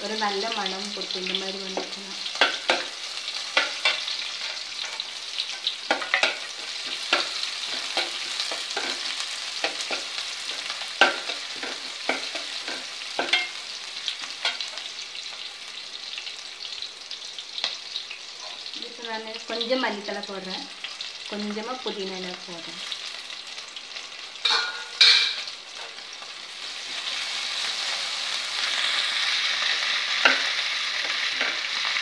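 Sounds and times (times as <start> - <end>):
onions and spices sizzling in oil: 0.0 - 32.0
ladle clinking and scraping pot: 24.4 - 25.5.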